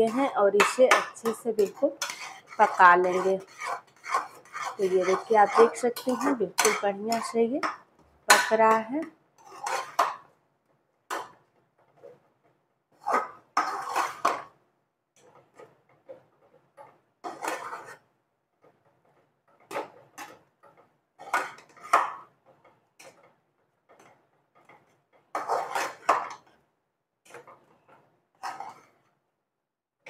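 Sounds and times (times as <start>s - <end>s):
metal spoon scraping pan: 0.0s - 10.3s, 13.0s - 14.6s, 16.8s - 18.8s, 19.5s - 23.3s, 23.9s - 26.6s, 27.3s - 29.1s.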